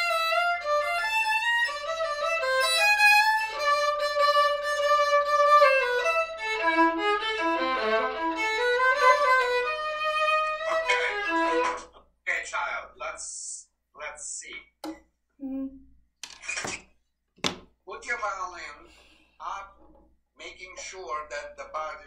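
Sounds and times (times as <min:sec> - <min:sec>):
solo violin melody: 0:00.0 - 0:11.9.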